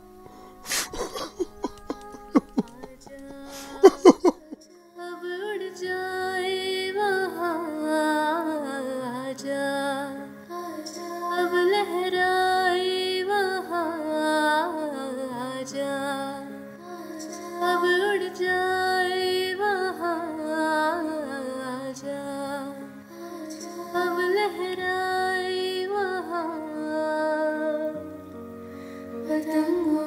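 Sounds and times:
slow gentle instrumental music: 0.0s - 30.0s.

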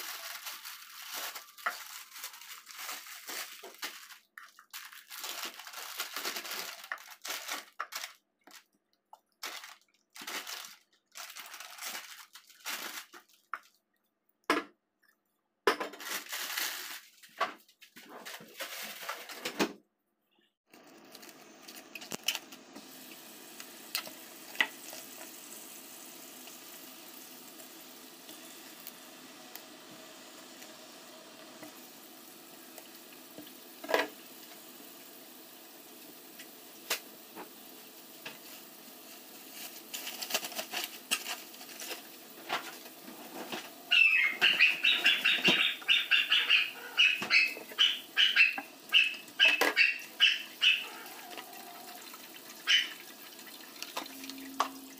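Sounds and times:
hands washing greens splashing: 0.0s - 14.1s, 31.6s - 54.9s.

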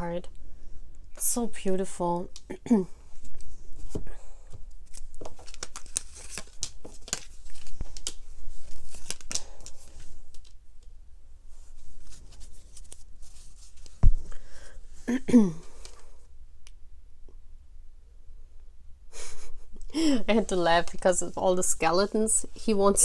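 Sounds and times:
cards shuffling and flicking: 4.8s - 10.6s.

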